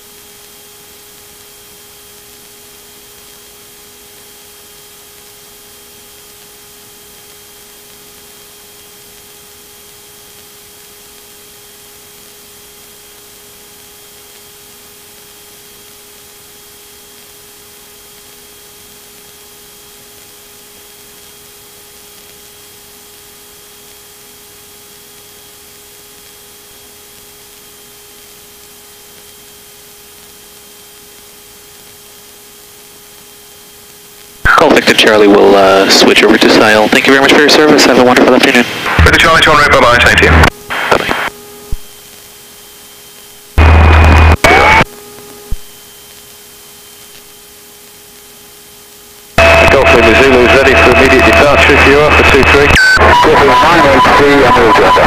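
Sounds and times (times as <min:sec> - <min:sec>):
electrical hum and whine: 0:00.0 - 0:55.0
intercom hiss: 0:34.5 - 0:41.9, 0:43.6 - 0:44.8, 0:49.4 - 0:55.0.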